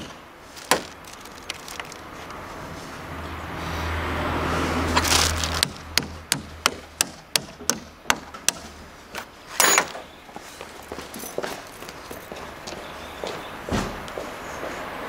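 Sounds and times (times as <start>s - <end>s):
plastic sheeting rustling: 0.0s - 3.0s, 4.6s - 5.8s.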